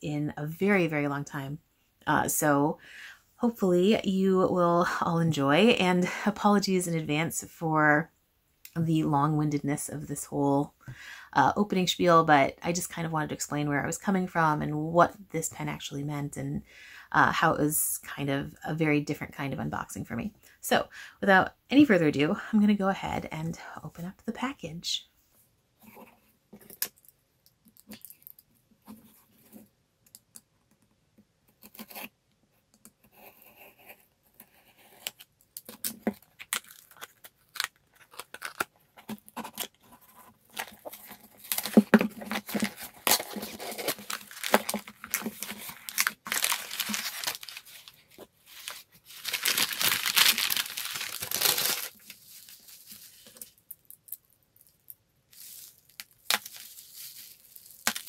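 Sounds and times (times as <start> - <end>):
small clicks and scrapes: 25.8 - 45.8
cardboard tearing and crinkling: 35.7 - 53.5, 55.4 - 58.0.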